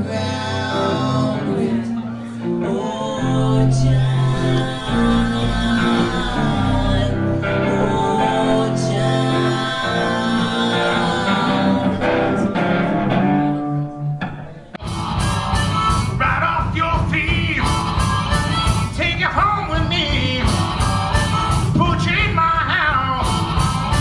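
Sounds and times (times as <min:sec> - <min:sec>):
man singing: 0:00.0 - 0:12.6, 0:16.0 - 0:23.4
guitar: 0:00.0 - 0:24.0
music with long held notes: 0:00.0 - 0:24.0
drum kit beating: 0:03.8 - 0:11.2, 0:14.2 - 0:24.0.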